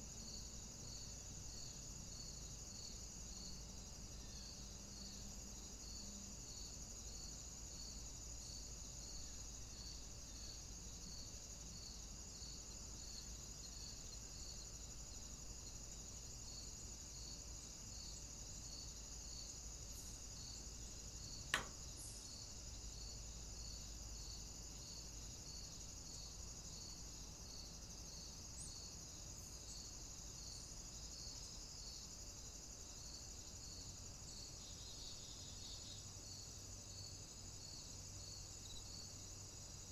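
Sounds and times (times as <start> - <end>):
sharp click: 21.5 - 21.9.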